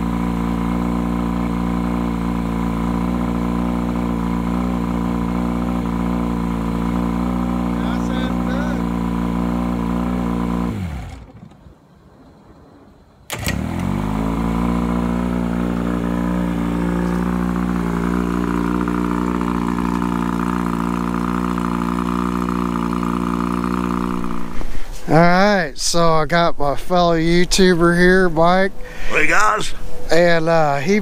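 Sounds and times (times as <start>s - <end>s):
outboard motor running: 0.0s - 11.7s, 13.3s - 25.5s.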